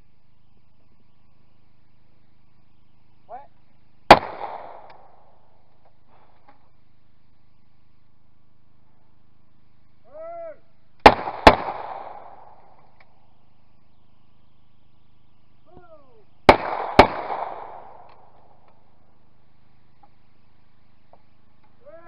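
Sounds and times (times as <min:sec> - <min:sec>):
person shouting a call: 0:03.3 - 0:03.6, 0:10.0 - 0:10.7, 0:15.7 - 0:16.3, 0:21.8 - 0:22.0
shotgun shots: 0:04.1 - 0:05.3, 0:11.0 - 0:12.8, 0:16.4 - 0:18.6.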